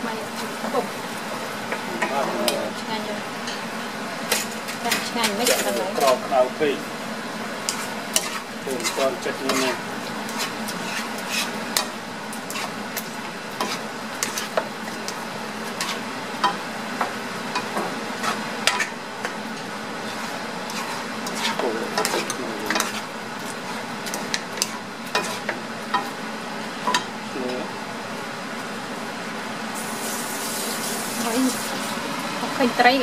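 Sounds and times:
vegetables sizzling: 0.0 - 33.0
utensils scraping a frying pan: 2.0 - 2.8, 4.3 - 6.3, 7.6 - 16.6, 17.6 - 19.0, 20.0 - 26.1.

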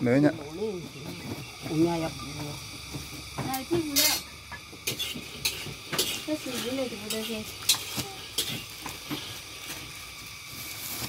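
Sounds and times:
pot and utensils clinking: 0.8 - 9.5.

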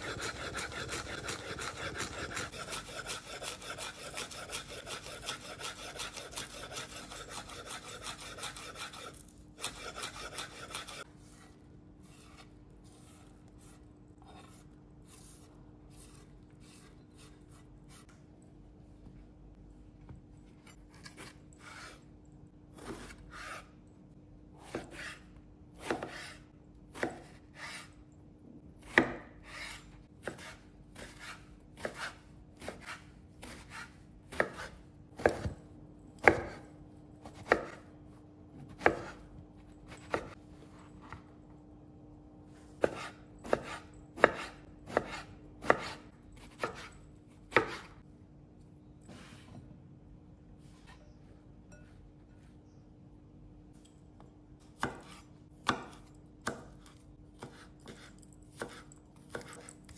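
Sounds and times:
knife chopping on wooden board: 0.0 - 11.0, 25.8 - 27.9, 28.8 - 35.6, 36.2 - 37.9, 38.6 - 39.3, 42.8 - 48.0, 54.8 - 59.9.

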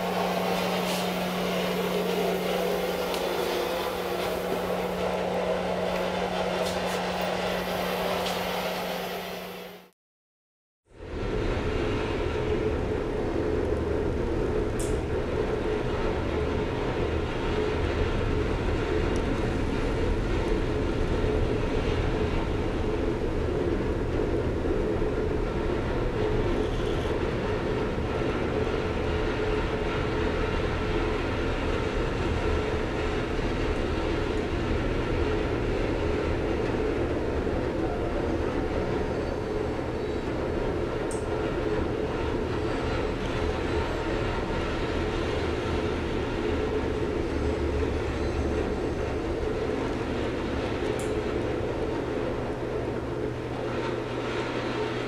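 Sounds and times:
faint held hum: 0.0 - 9.9.

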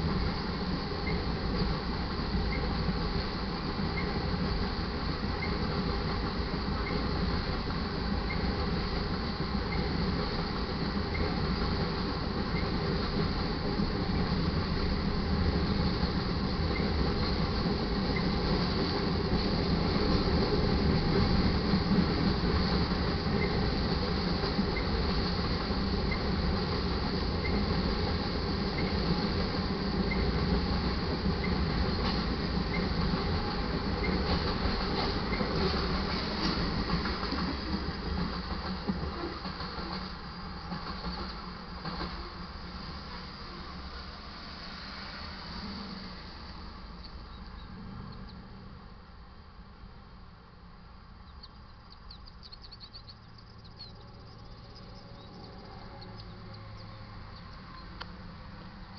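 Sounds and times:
freight train rumbling past: 0.0 - 58.9
cars passing on road: 39.9 - 51.9, 53.2 - 58.9
small birds chirping: 47.0 - 48.4, 51.2 - 58.0.

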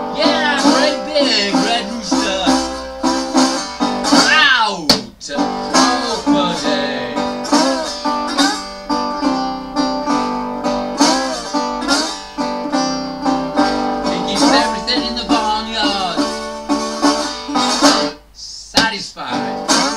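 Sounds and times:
slide guitar blues: 0.0 - 19.9.

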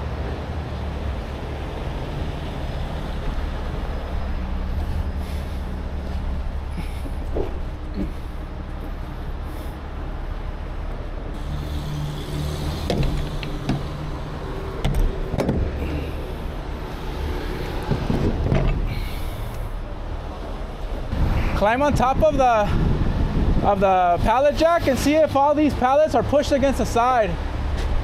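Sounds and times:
truck engine idling: 0.0 - 21.2.

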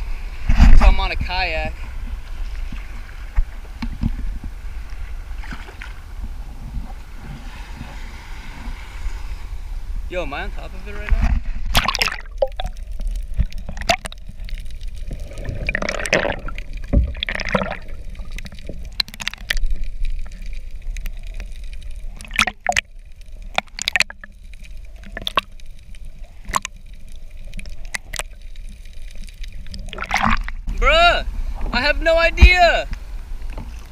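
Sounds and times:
muffled underwater rumble: 0.0 - 31.8
water bubbling: 11.6 - 31.5.

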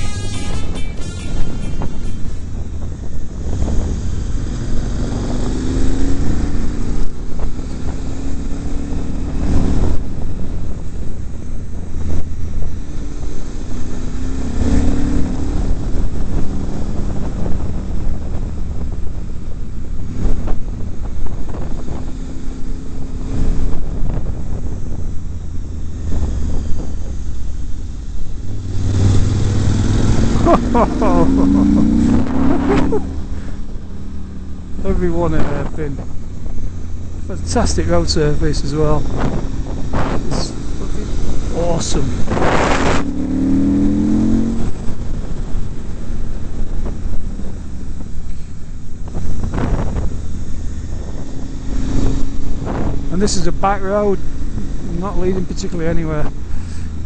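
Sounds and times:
motorcycle engine accelerating: 0.0 - 57.0
wind buffeting on microphone: 0.0 - 57.0.

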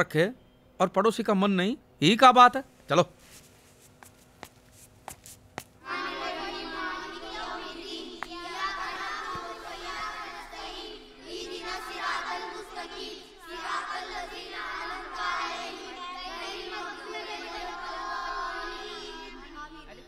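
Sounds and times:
many voices chanting melodically: 5.8 - 19.6.

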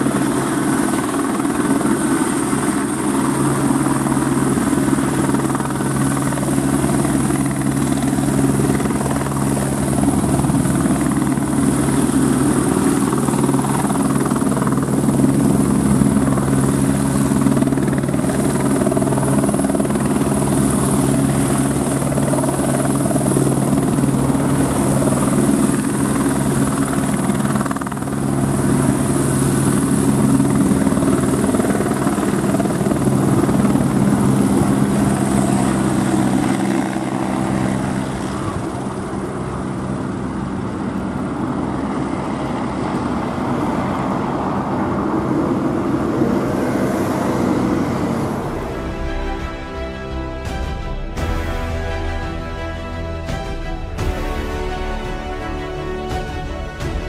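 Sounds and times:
helicopter rotor beat: 0.0 - 57.0
helicopter turbine whine: 0.0 - 57.0
low hum: 46.5 - 57.0.

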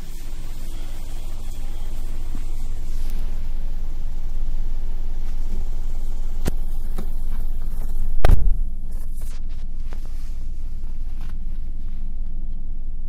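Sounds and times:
car engine idling: 0.0 - 13.0
loud thump: 8.2 - 8.8.

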